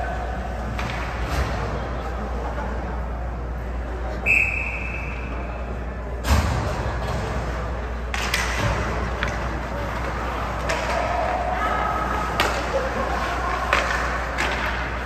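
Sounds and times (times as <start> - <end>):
ice rink hum and murmur: 0.0 - 15.0
referee's whistle: 4.2 - 5.6.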